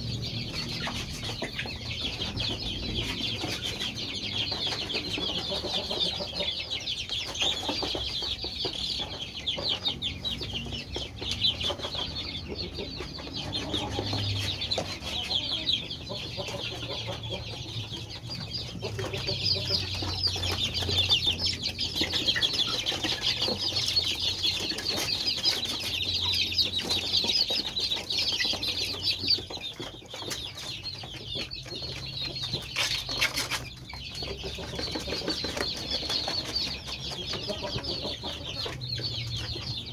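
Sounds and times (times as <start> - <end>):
chicks peeping: 0.0 - 39.9.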